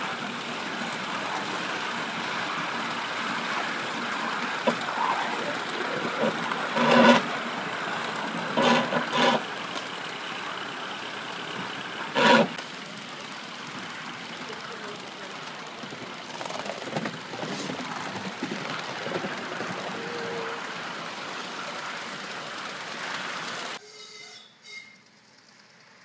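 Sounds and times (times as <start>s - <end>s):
wheels and working steam rushing: 0.0s - 26.0s
short pitched whistle blasts: 23.8s - 25.1s.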